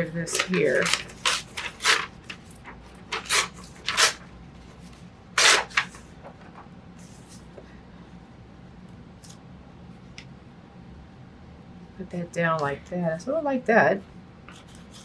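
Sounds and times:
paper handling: 0.2 - 7.6
paper tearing: 0.3 - 2.4, 3.1 - 4.2, 5.4 - 6.0.

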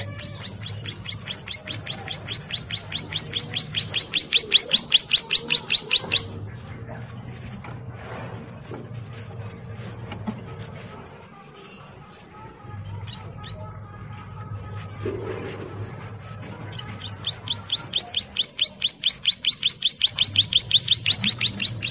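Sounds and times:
bird singing rapid falling notes: 0.0 - 6.4, 16.7 - 21.9.

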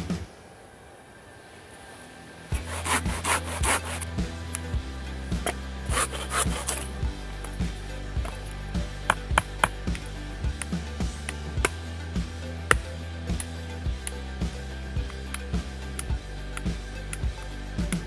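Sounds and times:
background music: 2.1 - 18.0
hand saw cutting wood: 2.6 - 4.1.

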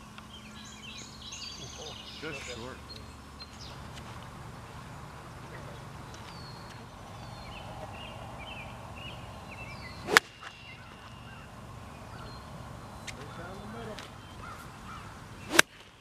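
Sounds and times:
golf club swing swoosh: 9.9 - 10.6, 15.4 - 15.8
golf club striking ball: 10.0 - 10.6, 15.5 - 15.7.

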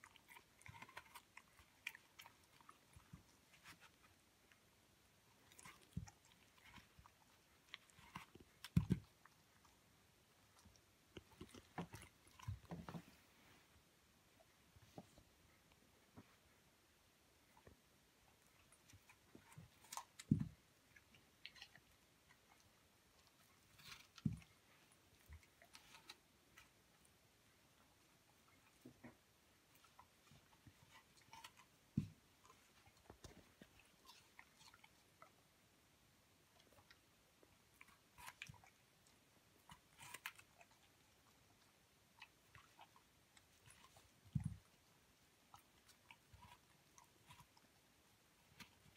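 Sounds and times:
dog crunching apple: 0.0 - 3.9
dog crunching an apple: 0.0 - 4.2, 37.7 - 47.7.

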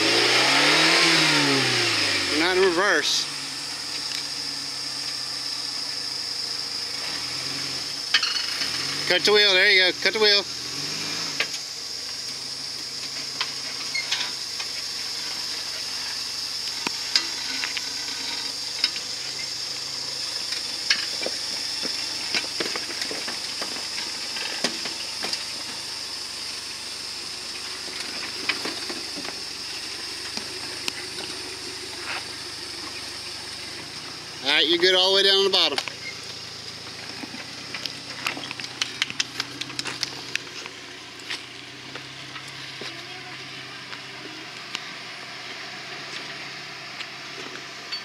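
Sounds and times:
tyres crawling over loose rock: 21.0 - 25.4, 35.7 - 43.0
gravel cracking and popping: 27.8 - 43.3.

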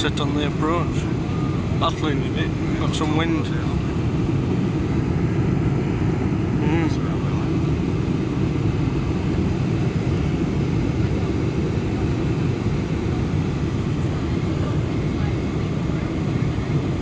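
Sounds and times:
airplane cabin engine rumble: 0.0 - 17.0.

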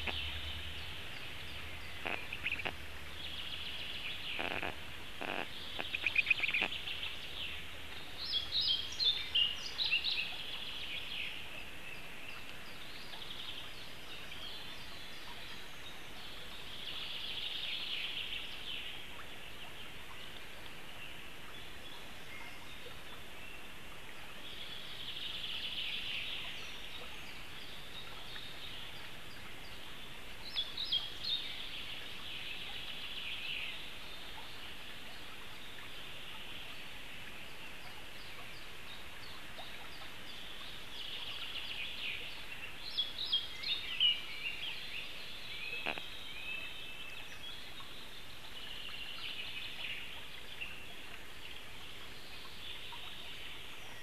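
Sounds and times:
bird chirping: 0.0 - 7.5, 41.0 - 46.8
distant birdsong chorus: 0.0 - 54.0.

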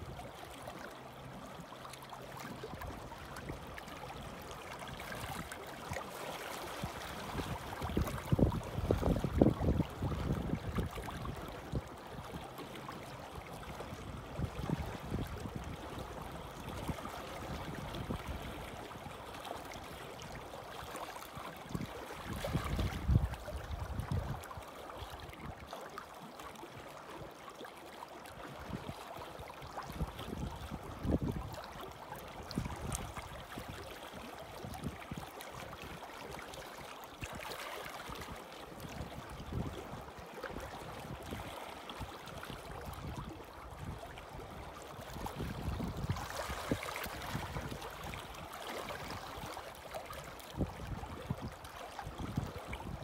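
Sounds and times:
small waves lapping on rocks: 0.1 - 53.0
wind rumbling on microphone: 6.7 - 20.4, 21.6 - 24.6, 29.6 - 36.0, 37.2 - 53.0.

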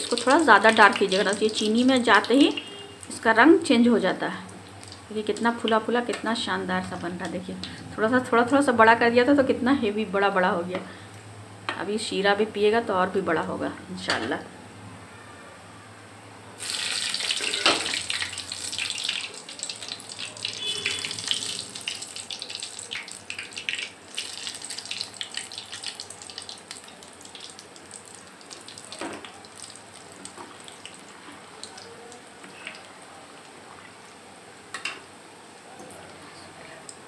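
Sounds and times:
dough balls deep-frying: 0.0 - 11.0, 16.5 - 36.2.

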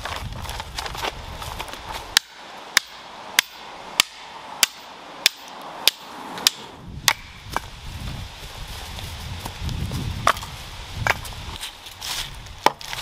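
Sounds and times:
split wood rustling: 0.0 - 13.0
hatchet chopping wood: 1.6 - 7.7, 10.2 - 11.3, 12.6 - 13.0.

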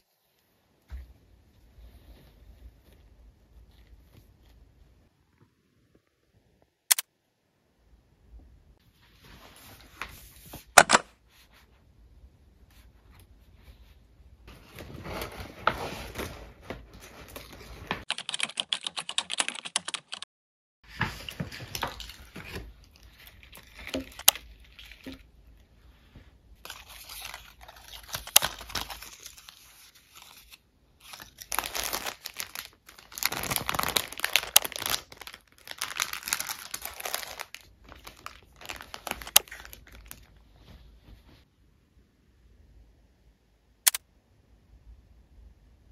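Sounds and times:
plastic packaging crinkling: 26.6 - 40.4.

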